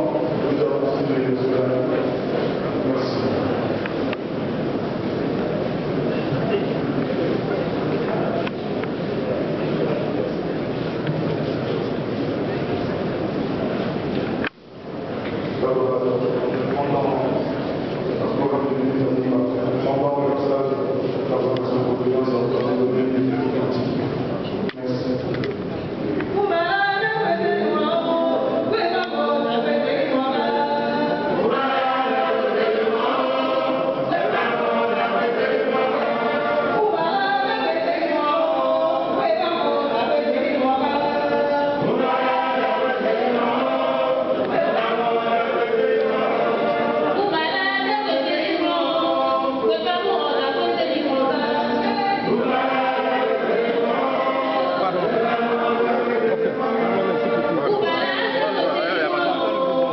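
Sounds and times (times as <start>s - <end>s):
choir singing: 26.4s - 59.9s.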